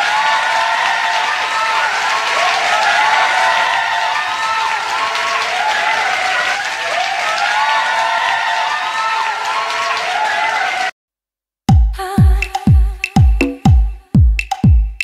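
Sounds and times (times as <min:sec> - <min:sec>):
crowd applauding: 0:00.0 - 0:10.9
crowd cheering: 0:00.0 - 0:11.0.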